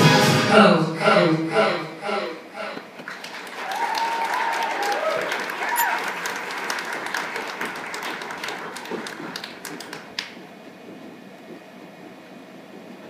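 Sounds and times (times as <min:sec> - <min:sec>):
faint hall hum: 0:00.0 - 0:13.0
audience applause: 0:03.0 - 0:10.4.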